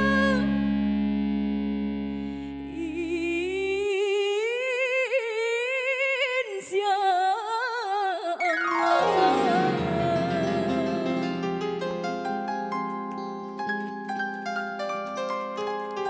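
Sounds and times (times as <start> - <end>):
woman singing with vibrato: 0.0 - 0.6, 2.4 - 11.6
band chord and bass: 0.0 - 2.9.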